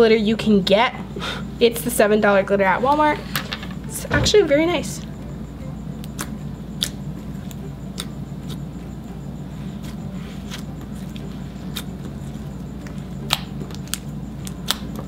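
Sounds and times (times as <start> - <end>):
low background hum: 0.0 - 15.0
slime clicking and popping: 13.2 - 15.0.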